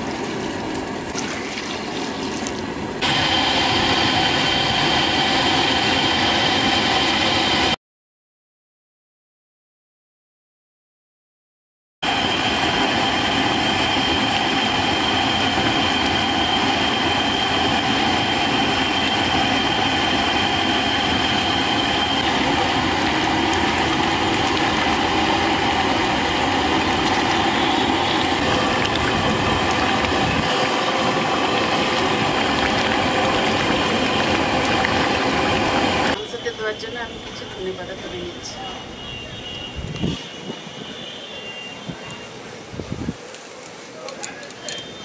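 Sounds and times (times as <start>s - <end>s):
gas burner rushing: 2.7s - 7.8s, 12.0s - 36.4s.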